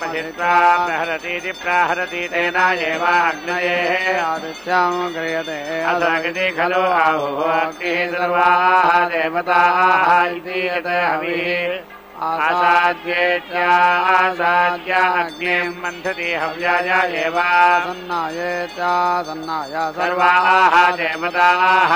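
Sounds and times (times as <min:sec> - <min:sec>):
melodic chanting: 0:00.0 - 0:21.9.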